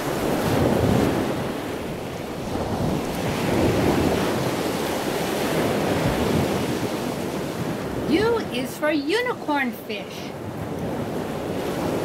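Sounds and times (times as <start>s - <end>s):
ocean waves rushing: 0.0s - 12.0s.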